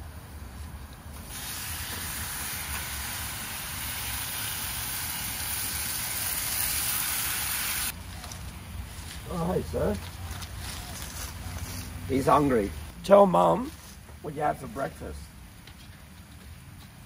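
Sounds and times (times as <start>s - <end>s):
meat sizzling in a frying pan: 1.3s - 7.9s.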